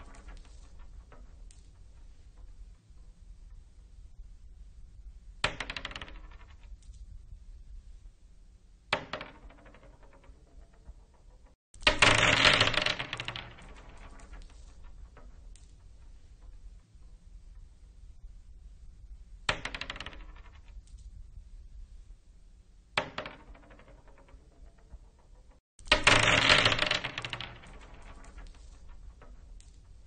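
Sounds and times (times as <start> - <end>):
marbles clattering on wooden floor: 0.0 - 1.7, 5.5 - 6.7, 9.0 - 15.7, 19.5 - 20.7, 23.0 - 29.8.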